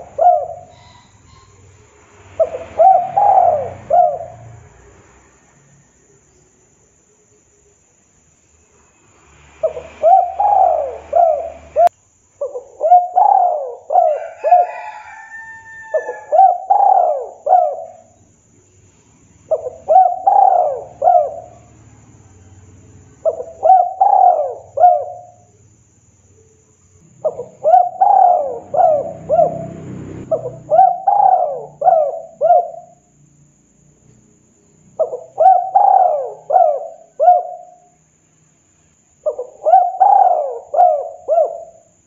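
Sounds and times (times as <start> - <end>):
dove cooing: 0.0 - 4.6, 9.6 - 18.2, 19.5 - 21.8, 23.2 - 25.5, 27.1 - 33.1, 34.9 - 38.0, 39.2 - 42.0.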